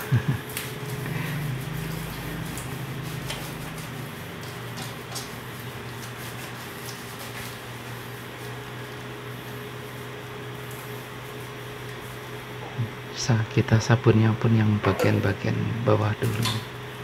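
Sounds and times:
steady low hum: 14.6s - 16.7s.

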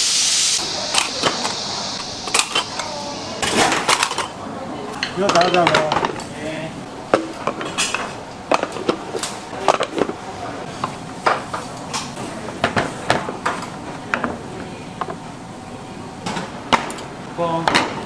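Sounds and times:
dishes and utensils clattering: 2.3s - 6.4s, 7.1s - 10.2s.

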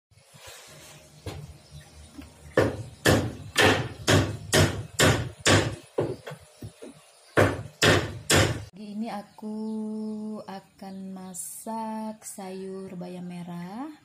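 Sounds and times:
hammer blows on wood: 2.6s - 6.3s.

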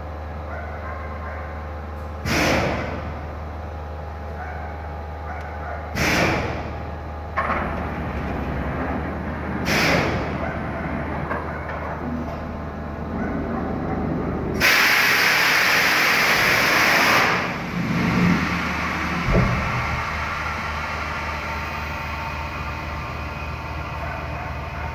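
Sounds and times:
short air hisses: 2.2s - 2.9s, 6.0s - 6.6s, 9.7s - 10.2s, 14.6s - 17.6s
loud rush of air: 6.0s - 6.7s, 9.3s - 10.4s, 14.2s - 21.9s
machine humming: 6.6s - 24.9s.

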